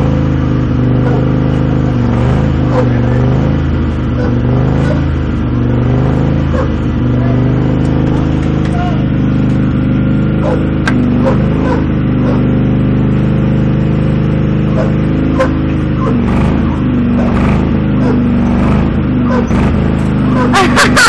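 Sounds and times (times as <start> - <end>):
lawn mower engine at high throttle: 0.0 - 21.0.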